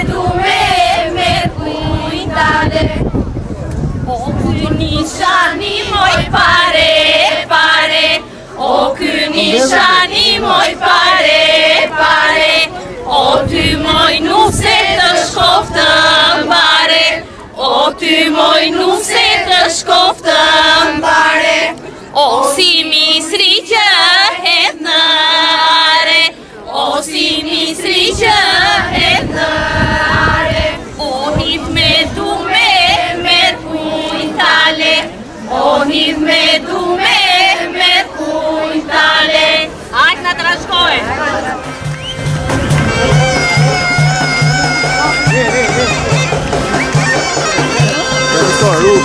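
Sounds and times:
group of voices singing folk song: 0:00.0 - 0:03.3, 0:04.0 - 0:45.0.

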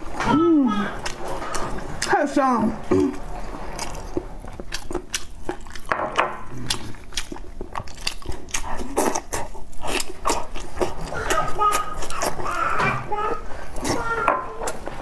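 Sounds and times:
chewing meat: 0:00.7 - 0:15.0.

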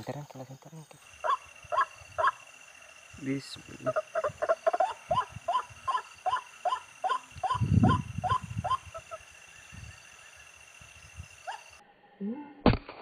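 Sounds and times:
high insect drone: 0:00.0 - 0:12.0
animal short rising calls: 0:03.8 - 0:09.3.

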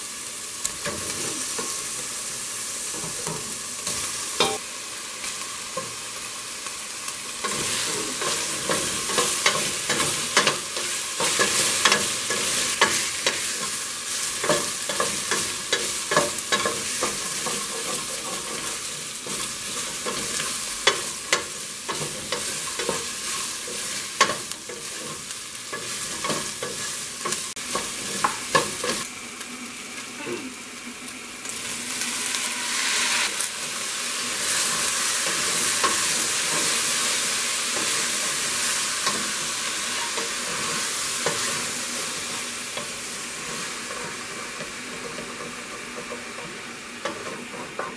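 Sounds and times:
meat and onion sizzling in oil: 0:00.0 - 0:47.9.

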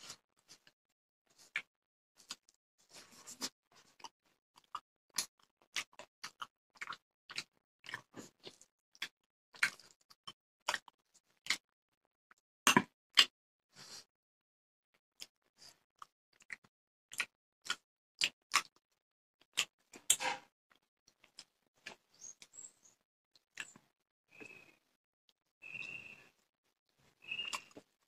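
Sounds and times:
person chewing and smacking: 0:01.3 - 0:11.7, 0:12.7 - 0:13.3, 0:15.2 - 0:22.5, 0:23.4 - 0:24.5, 0:27.4 - 0:28.0.

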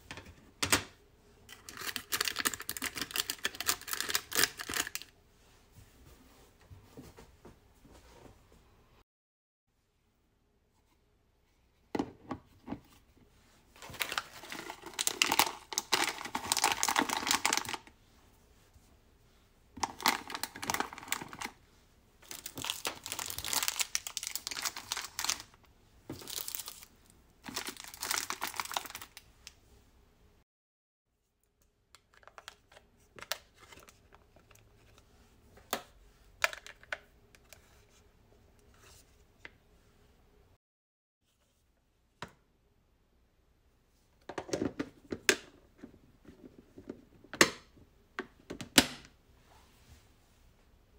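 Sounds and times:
plastic wrappers crinkling: 0:01.5 - 0:05.1, 0:13.8 - 0:17.9, 0:19.8 - 0:21.6, 0:22.2 - 0:29.3.

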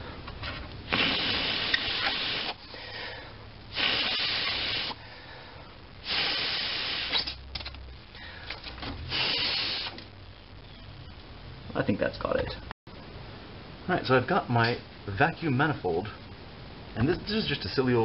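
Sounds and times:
air and water spraying from pipe: 0:00.9 - 0:02.7, 0:03.7 - 0:05.0, 0:06.0 - 0:07.4, 0:09.0 - 0:10.0.

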